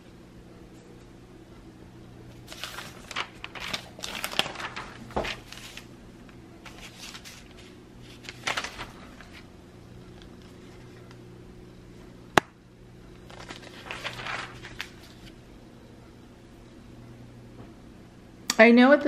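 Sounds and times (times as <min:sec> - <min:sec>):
faint steady hum: 0:00.0 - 0:19.0
paper rustling and crinkling: 0:02.3 - 0:11.2, 0:13.2 - 0:15.4.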